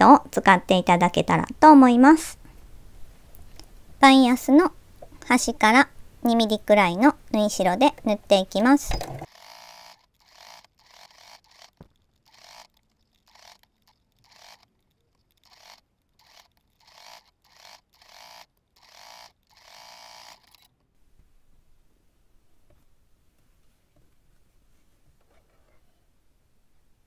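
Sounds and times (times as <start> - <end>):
electric sewing machine stitching: 9.0 - 14.7, 15.4 - 20.7.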